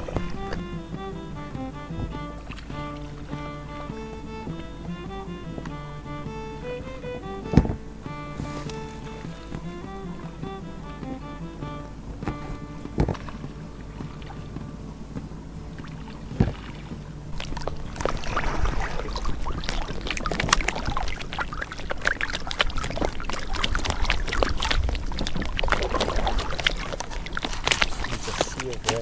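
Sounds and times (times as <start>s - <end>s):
water lapping against boat: 0.0s - 29.0s
knock on boat: 7.4s - 11.3s, 12.1s - 19.6s.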